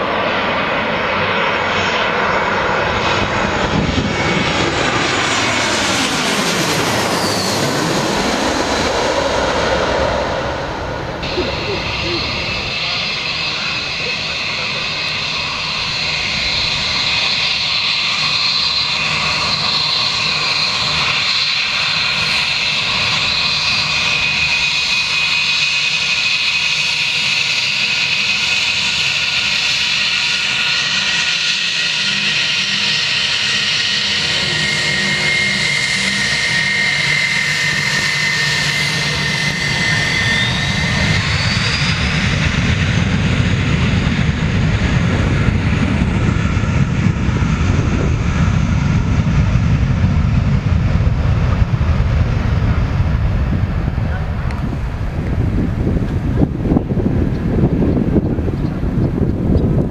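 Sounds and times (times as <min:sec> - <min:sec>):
deep engine rumble: 0:00.0 - 0:21.3, 0:33.9 - 0:59.9
jet engines whining: 0:00.0 - 0:59.9.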